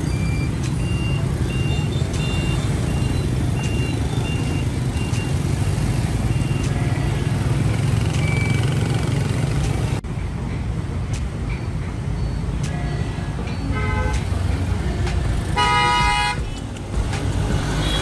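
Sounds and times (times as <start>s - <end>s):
short high electronic beeps: 0.0s - 7.0s, 8.0s - 8.9s
motorbikes and trucks passing: 0.0s - 18.0s.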